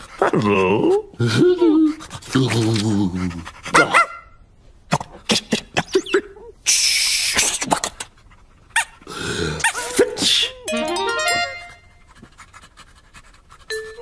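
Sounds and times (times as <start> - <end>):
squeaky dog-like whimpers: 9.6 - 10.8
quick run of musical notes: 10.7 - 12.0.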